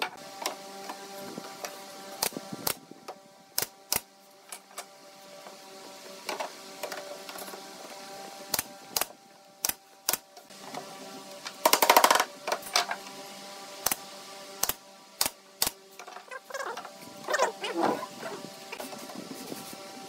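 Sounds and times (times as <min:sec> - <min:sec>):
nail gun firing into boards: 0:11.6 - 0:12.9, 0:14.6 - 0:15.8.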